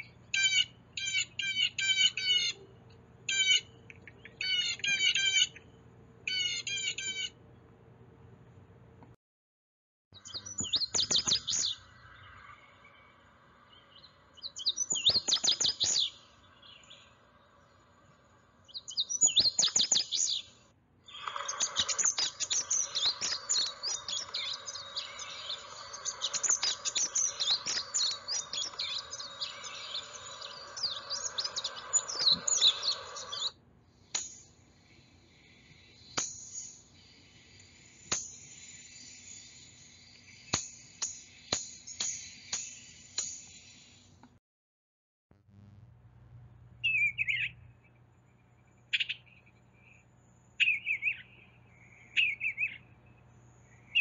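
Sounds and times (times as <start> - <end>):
bird song high quick phrases: 0.0 - 2.6, 3.3 - 7.3, 10.2 - 17.2, 18.6 - 33.5, 46.8 - 54.0
high chirping: 0.0 - 2.6, 3.3 - 7.3, 10.2 - 33.5, 34.2 - 44.2, 46.8 - 54.0
faint clicks: 3.8 - 4.4
background hiss: 10.2 - 44.4.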